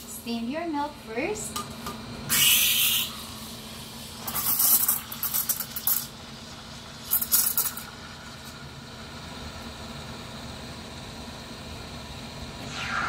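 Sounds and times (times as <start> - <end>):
steam wand hissing and sputtering: 2.3 - 6.1, 12.6 - 13.0.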